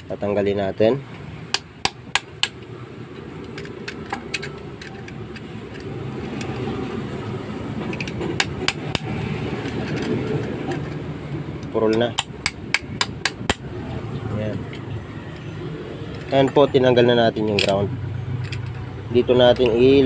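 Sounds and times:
metal cutter clicking and scraping: 0:03.4 - 0:06.8, 0:07.8 - 0:13.6, 0:17.4 - 0:17.8.

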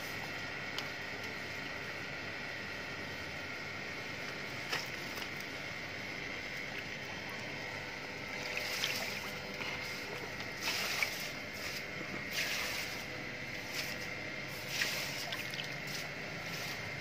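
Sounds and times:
water lapping and splashing: 0:06.6 - 0:13.0, 0:14.6 - 0:16.1.

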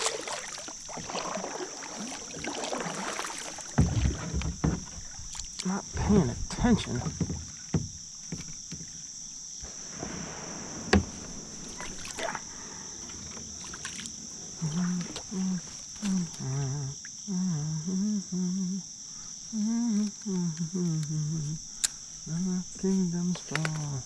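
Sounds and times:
insects chirring: 0:00.0 - 0:24.0
man humming: 0:14.6 - 0:24.0.

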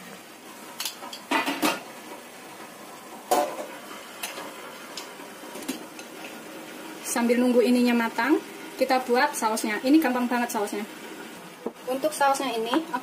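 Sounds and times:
dishes and cookware clinking: 0:00.8 - 0:01.9.

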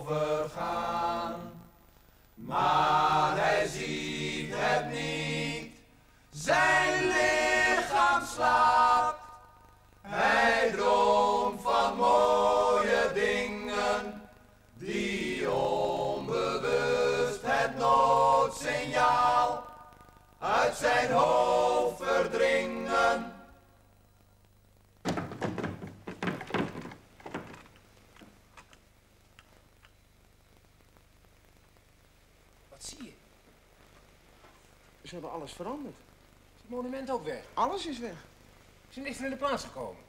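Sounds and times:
men singing a cappella: 0:00.0 - 0:01.7, 0:02.4 - 0:09.4, 0:10.1 - 0:23.5.

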